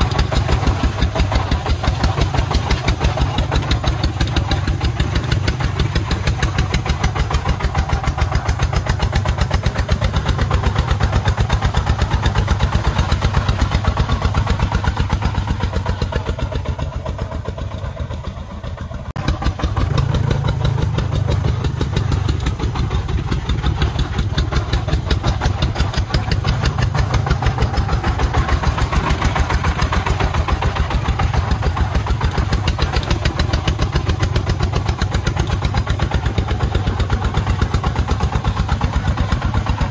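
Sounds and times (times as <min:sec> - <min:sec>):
diesel engine chugging: 0:00.0 - 0:39.9.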